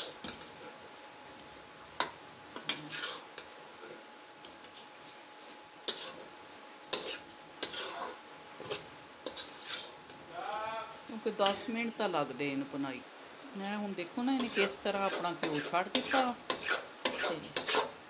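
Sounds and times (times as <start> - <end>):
metal spatula scraping a pan: 0.0 - 0.9, 2.0 - 4.8, 5.4 - 10.2, 11.4 - 11.7, 14.2 - 18.0.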